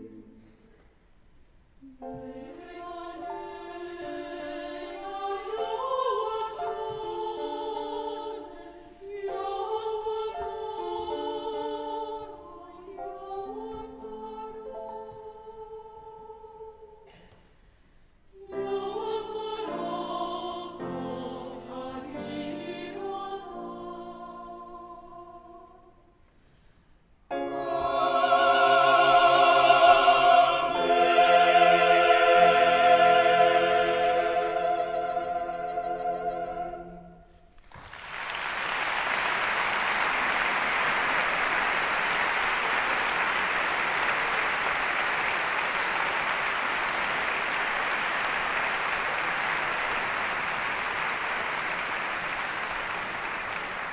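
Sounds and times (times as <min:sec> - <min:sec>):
choir singing: 0:01.9 - 0:17.2, 0:18.4 - 0:26.0, 0:27.3 - 0:37.5
audience applause: 0:37.6 - 0:53.9.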